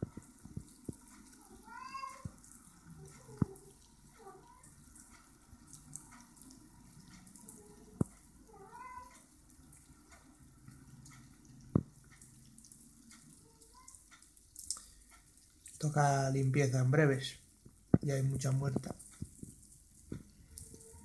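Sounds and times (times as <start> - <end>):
cat meowing softly: 1.4 - 4.8, 7.5 - 9.3, 13.4 - 14.1.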